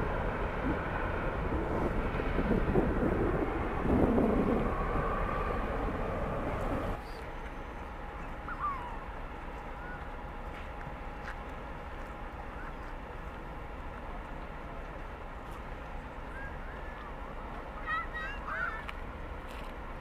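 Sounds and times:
ferry engines rumbling: 0.0 - 20.0
steady wash of noise: 0.0 - 20.0
bird call: 7.0 - 9.1.

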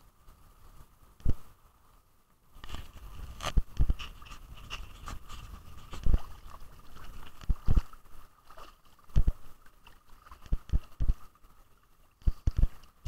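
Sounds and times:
waves splashing: 2.8 - 13.0
underwater thump: 9.1 - 9.4.

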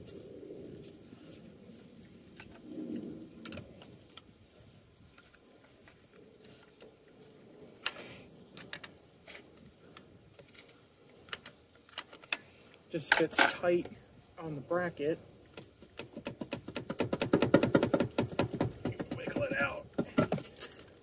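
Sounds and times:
metallic clicks and knocks: 13.0 - 13.9, 15.5 - 21.0.

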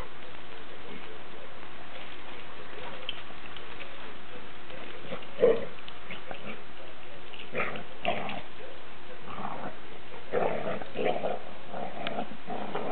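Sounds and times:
dogs growling and grunting: 4.7 - 12.9.

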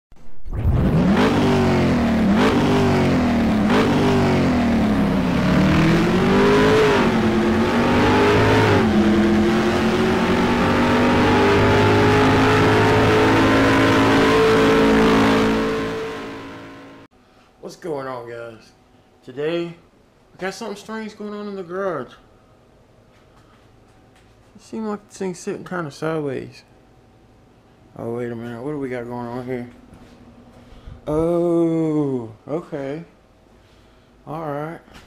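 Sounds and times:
car engine revving: 0.5 - 17.1.

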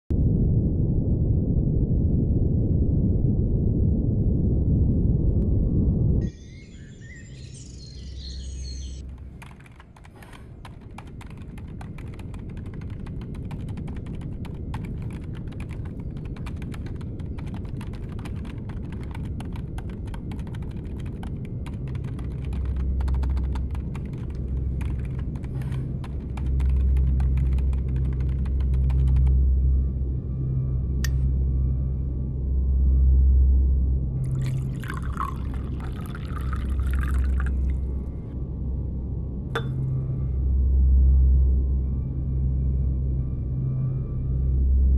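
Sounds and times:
low hum: 0.1 - 44.9
typing on a keyboard: 9.0 - 29.3.

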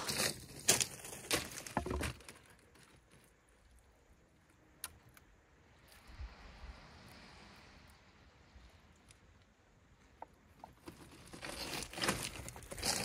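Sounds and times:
footsteps on pebbles: 0.0 - 3.7, 10.6 - 13.0.

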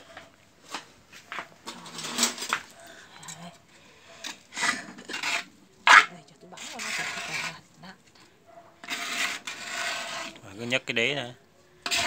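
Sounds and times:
sticky rice scraped in metal pot: 3.5 - 8.0, 8.8 - 11.0, 11.8 - 12.0.

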